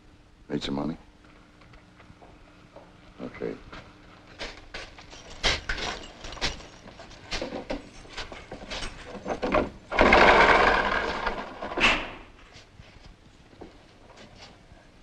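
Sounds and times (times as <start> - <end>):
jail cell door sliding open: 8.7 - 12.3.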